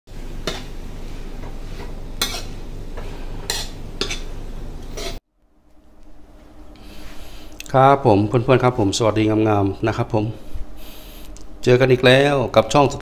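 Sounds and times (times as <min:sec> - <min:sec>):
steady low hum: 0:00.1 - 0:13.0
metal spatula scraping wok: 0:00.3 - 0:05.2.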